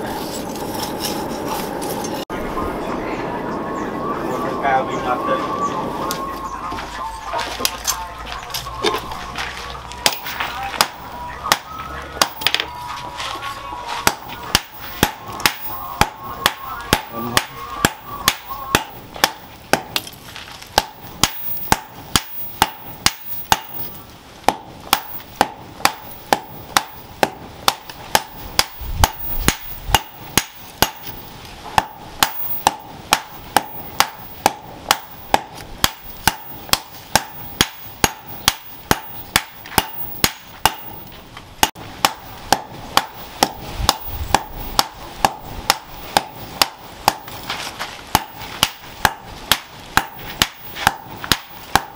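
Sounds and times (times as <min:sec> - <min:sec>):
hammer clanging on anvil: 0:10.0 - 0:12.9.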